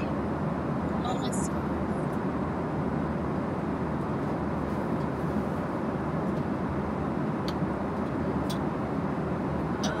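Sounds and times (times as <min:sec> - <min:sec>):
airplane cabin engine drone: 0:00.0 - 0:10.0.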